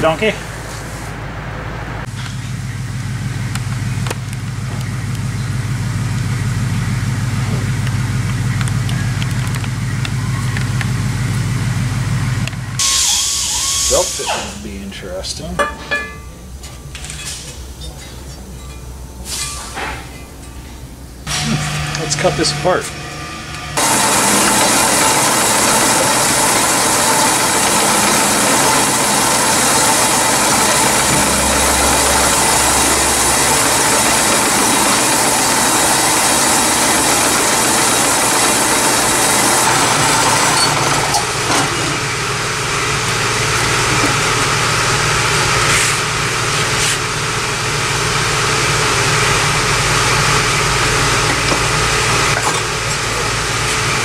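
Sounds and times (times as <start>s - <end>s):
band saw cutting metal: 21.3s - 54.0s.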